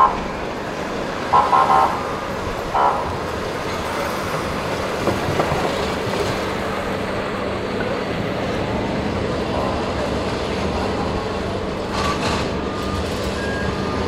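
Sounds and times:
traffic hum of engines and tyres: 0.0 - 14.0
vehicle horn toots: 1.3 - 3.2.

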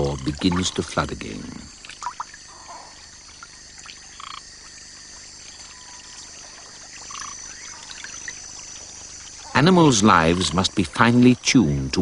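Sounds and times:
frogs calling: 0.0 - 12.0
steady high hiss: 0.0 - 12.0.

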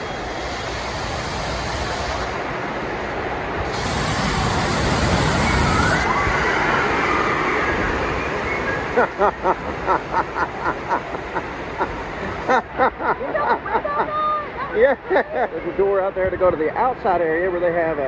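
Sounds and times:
torrent of water dumping: 0.0 - 12.9
fountain spray: 0.0 - 16.0.

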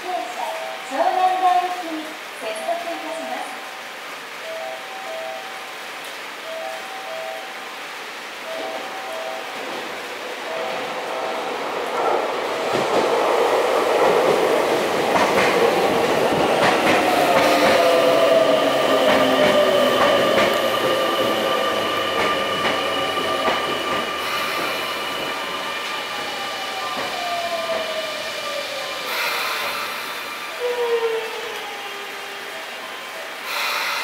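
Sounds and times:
electric train braking: 2.7 - 13.0, 14.0 - 34.0
wheels clicking over rail joints: 12.0 - 28.1.

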